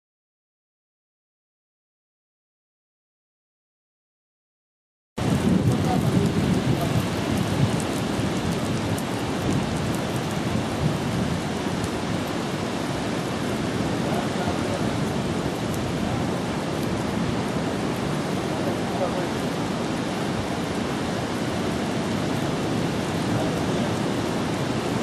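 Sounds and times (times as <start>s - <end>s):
sea surf rushing: 5.2s - 25.0s.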